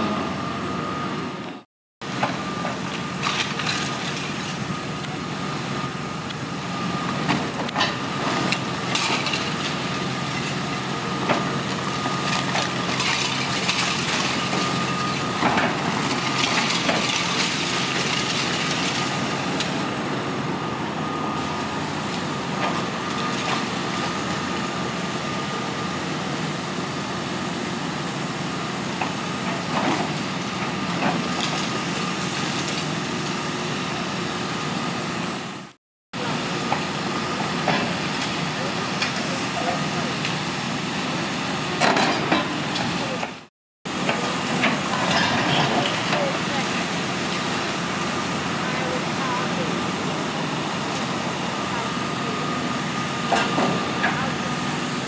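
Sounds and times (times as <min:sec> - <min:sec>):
excavator engine running: 0:00.0 - 0:55.0
concrete cracking and rubble falling: 0:03.2 - 0:04.4, 0:12.2 - 0:14.4.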